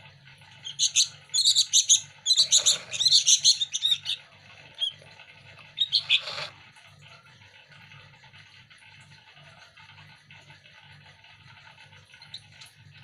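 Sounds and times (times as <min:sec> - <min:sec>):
fledgling birds begging chirps: 0:00.6 - 0:06.5.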